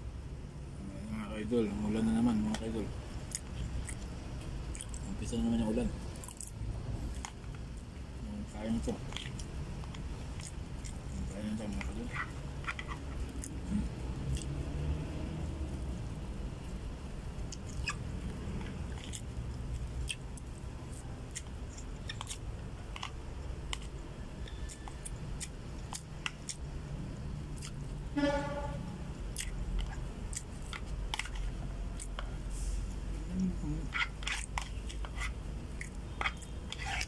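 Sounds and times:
close-up chewing: 3.3s - 5.2s, 9.0s - 14.6s, 17.4s - 26.7s, 29.3s - 32.4s.

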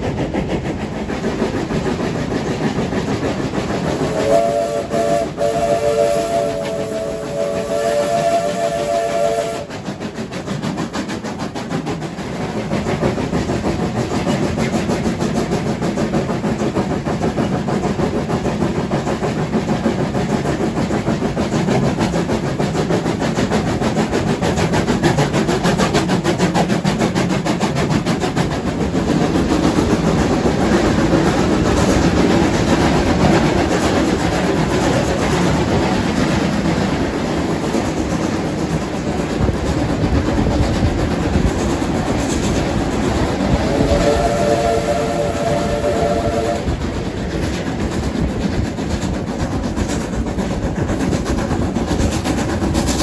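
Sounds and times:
locomotive exhaust beating: 0.0s - 53.0s
wheels clattering on rails: 0.0s - 53.0s
steam locomotive whistle: 3.9s - 9.8s, 43.5s - 46.9s.

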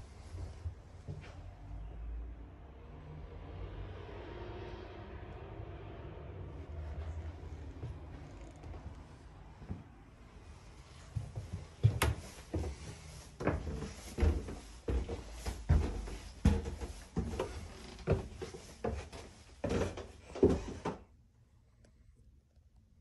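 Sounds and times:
footsteps on wooden stairs: 11.2s - 21.0s.

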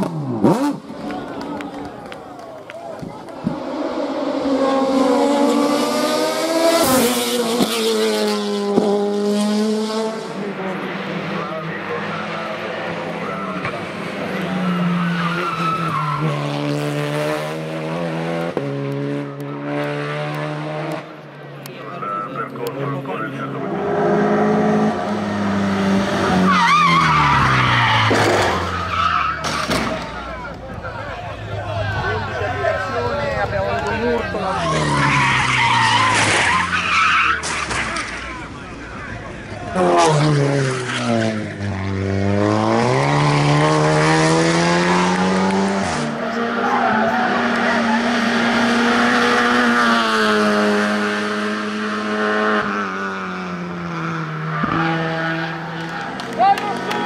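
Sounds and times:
race car engine accelerating: 0.0s - 57.0s
tyres squealing: 14.4s - 16.4s, 26.2s - 30.2s, 34.3s - 38.5s.

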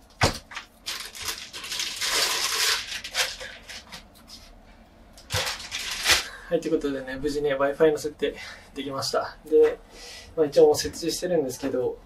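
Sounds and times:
packaging rustling and crinkling: 0.2s - 4.6s, 5.2s - 6.3s.

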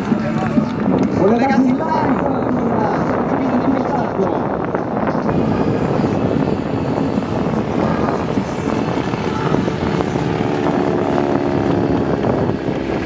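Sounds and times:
propeller plane droning past: 4.5s - 13.0s.

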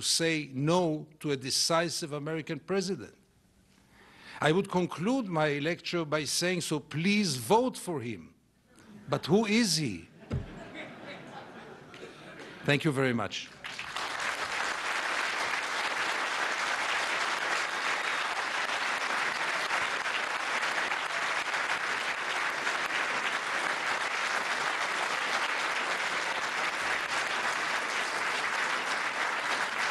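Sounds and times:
large audience applauding: 13.5s - 29.9s.

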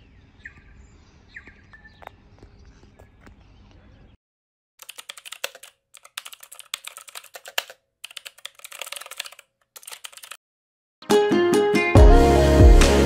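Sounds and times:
keyboard typing clicks: 4.8s - 10.4s.

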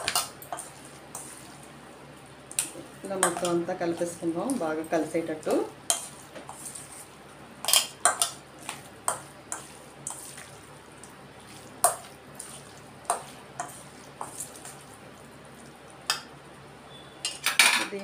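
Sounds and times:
spoon clinking and scraping bowl: 5.9s - 7.0s, 7.6s - 10.5s, 16.9s - 17.8s.

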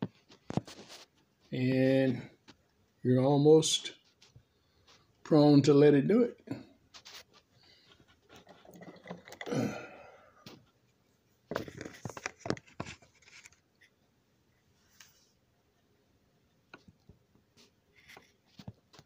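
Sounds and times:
breathy handling rustle: 6.9s - 10.6s.

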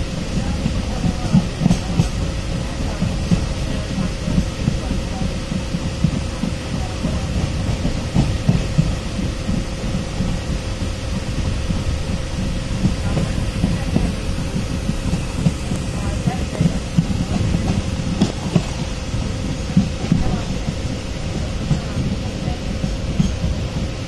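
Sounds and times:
train wheels rumbling on track: 0.0s - 24.0s.

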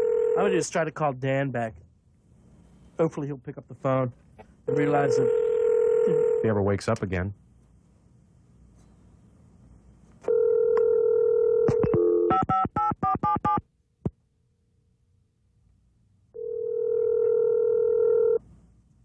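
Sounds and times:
telephone dial tone: 4.7s - 6.4s, 10.3s - 12.4s, 16.4s - 18.4s.

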